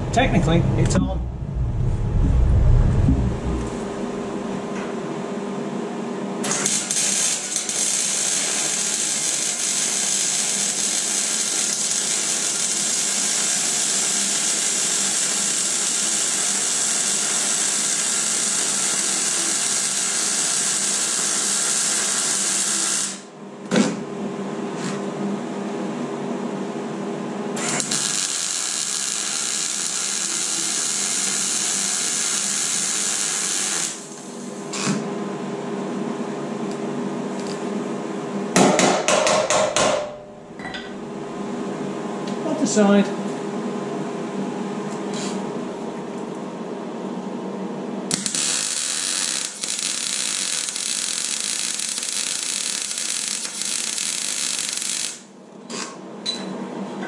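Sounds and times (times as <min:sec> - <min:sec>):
low hum: 0:00.0 - 0:04.9
welder arc hissing and crackling: 0:06.4 - 0:23.3, 0:27.6 - 0:35.0, 0:48.1 - 0:55.8.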